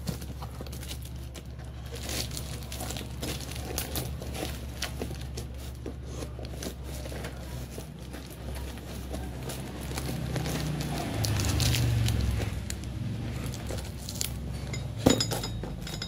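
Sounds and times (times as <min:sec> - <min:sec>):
scissors cutting cardboard: 0:00.0 - 0:12.7
packing tape crinkling: 0:00.0 - 0:14.4.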